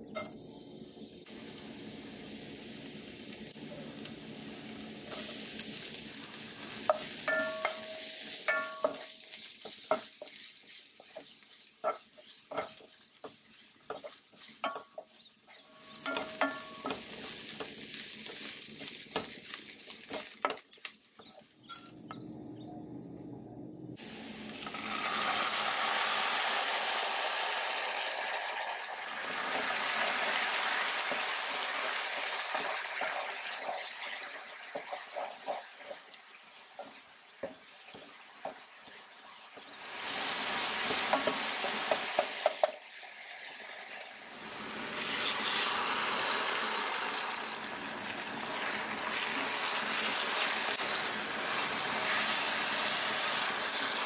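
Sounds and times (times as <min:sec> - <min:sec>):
garlic sizzling in hot oil: 0:00.0 - 0:21.8, 0:24.0 - 0:54.0
wooden spatula scraping pan: 0:06.8 - 0:20.6, 0:29.5 - 0:36.2
sauce poured into hot pan: 0:24.0 - 0:54.0.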